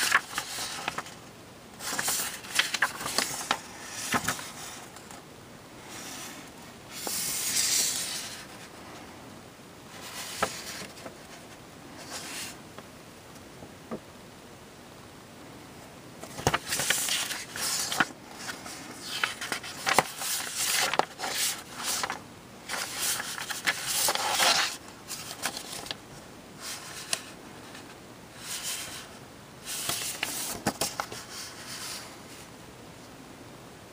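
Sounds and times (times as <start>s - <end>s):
paper pages flipping: 0.0s - 1.2s, 1.8s - 5.2s, 6.1s - 8.7s, 9.9s - 12.6s, 16.2s - 26.0s, 26.6s - 32.1s.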